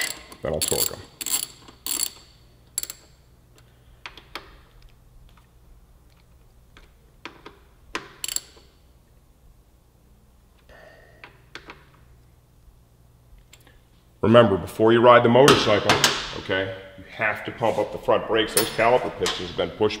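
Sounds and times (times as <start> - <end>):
ratchet and wrench clicking: 0.0 - 3.2, 7.3 - 8.8.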